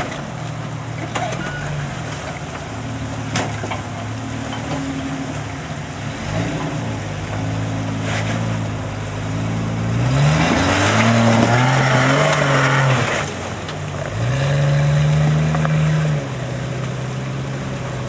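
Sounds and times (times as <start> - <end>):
engine revving: 9.2 - 16.9.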